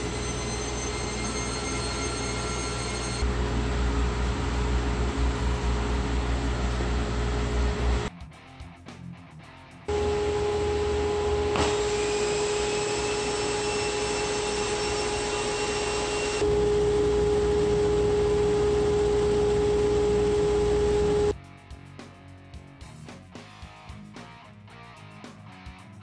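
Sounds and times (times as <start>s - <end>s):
thin rising whine: 0.0s - 8.1s, 9.9s - 21.4s
dust collector rushing air and hum: 3.2s - 8.1s, 9.9s - 21.4s.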